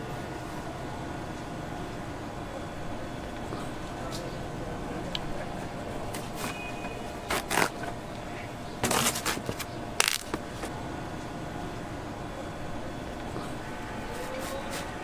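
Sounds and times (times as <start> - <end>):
steady background hum: 0.0 - 15.0
fruit being cut and handled: 6.2 - 8.0, 8.8 - 10.7.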